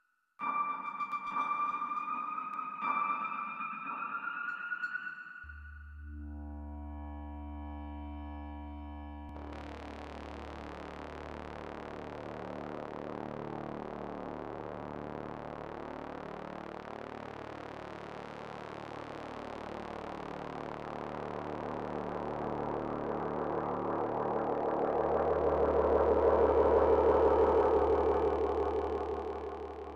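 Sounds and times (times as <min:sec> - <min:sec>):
dark droning soundtrack: 0:00.4 - 0:09.9, 0:22.4 - 0:29.9.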